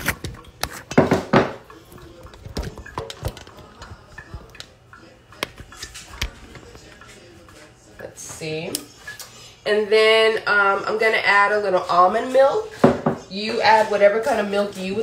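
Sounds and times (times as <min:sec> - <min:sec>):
dishes and utensils clinking: 0:00.0 - 0:09.4.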